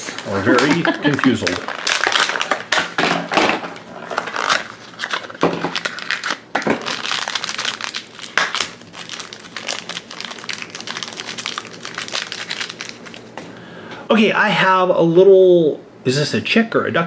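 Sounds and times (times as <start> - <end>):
foil bag crinkling: 0.0 - 13.4.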